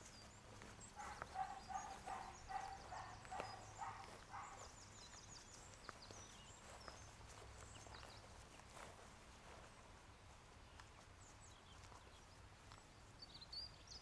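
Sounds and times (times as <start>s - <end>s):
small birds chirping: 0.0s - 14.0s
dog barking faintly: 1.0s - 4.8s.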